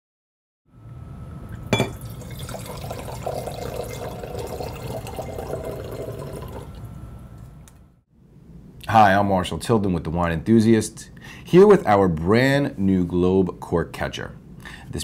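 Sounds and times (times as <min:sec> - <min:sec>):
glass clinking: 0:01.6 - 0:06.7
wine pouring into glasses: 0:01.6 - 0:06.9.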